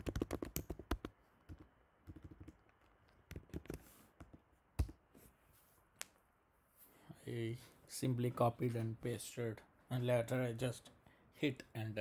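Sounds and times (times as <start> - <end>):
computer keyboard keystrokes: 0.0 - 2.6.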